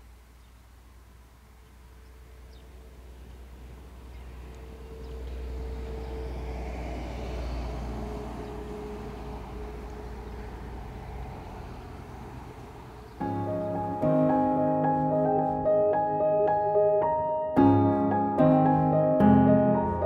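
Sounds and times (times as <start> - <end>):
distant vehicle passing: 1.8 - 17.2
piano music: 13.0 - 20.0.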